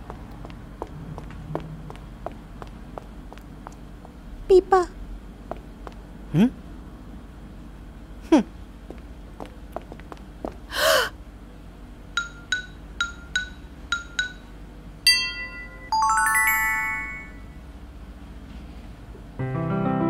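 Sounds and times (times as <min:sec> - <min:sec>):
sparkling rising chime: 0:15.3 - 0:17.6.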